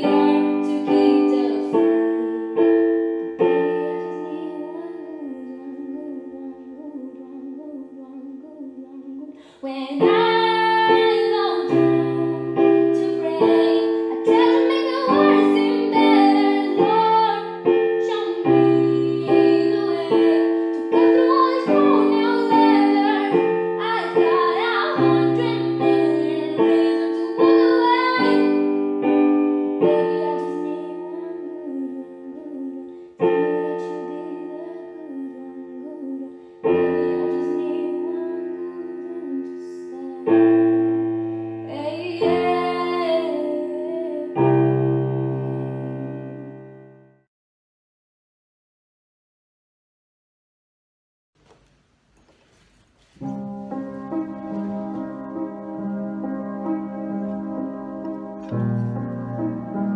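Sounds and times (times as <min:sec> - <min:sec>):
young female voice singing: 0:00.0 - 0:02.6, 0:03.4 - 0:28.8, 0:29.8 - 0:40.8, 0:41.7 - 0:44.6
digital piano block chords: 0:00.0 - 0:08.0, 0:10.0 - 0:47.1, 0:53.2 - 0:59.9.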